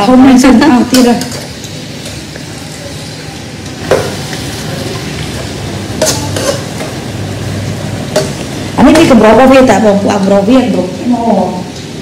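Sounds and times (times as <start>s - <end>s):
spatula stirring food in frying pan: 0.9s - 9.2s.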